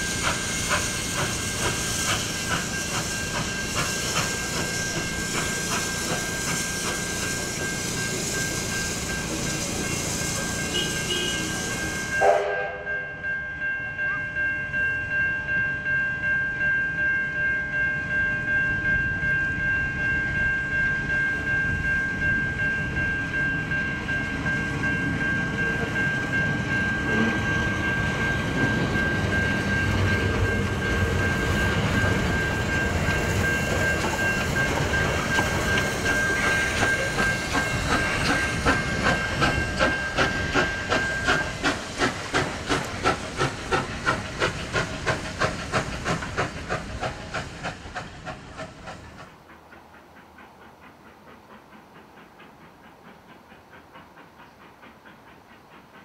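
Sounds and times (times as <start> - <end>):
level-crossing bells ringing: 0.0 - 41.7
steam locomotive beats: 0.0 - 56.0
steam train rolling past: 0.0 - 56.0.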